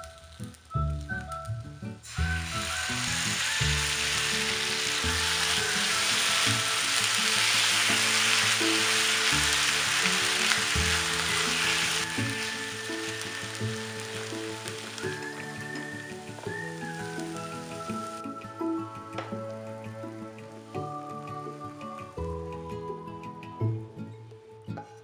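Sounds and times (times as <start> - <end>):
food sizzling in a frying pan: 0.0 - 22.3
peppers tossed with tongs: 2.0 - 17.9.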